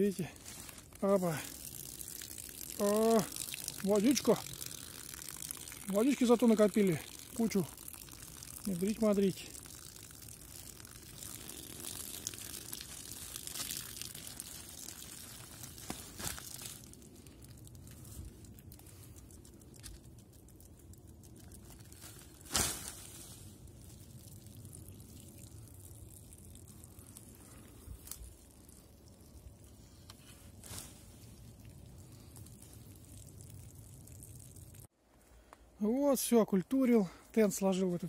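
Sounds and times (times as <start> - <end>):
plastic tarp rustling and crinkling: 0.0 - 20.6, 21.3 - 25.2, 26.7 - 33.3.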